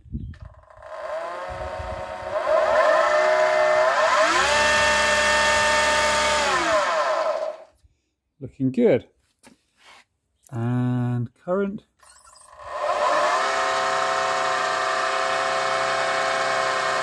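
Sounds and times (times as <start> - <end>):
electric outboard motor whine: 0.4 - 7.7, 12.6 - 17.0.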